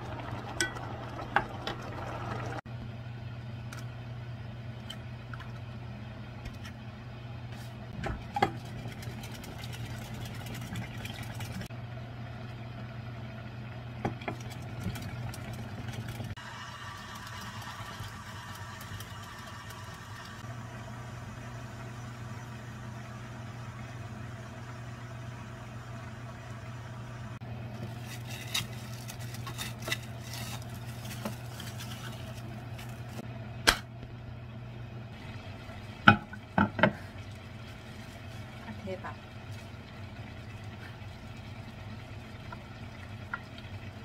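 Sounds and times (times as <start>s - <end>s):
plastic wrap crinkling: 27.8s - 33.2s.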